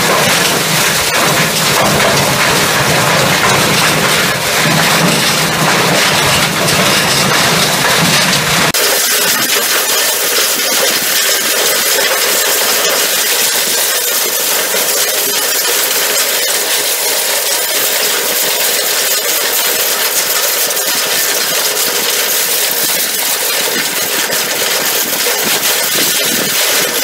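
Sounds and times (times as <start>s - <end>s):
hammer mill running: 0.0s - 27.0s.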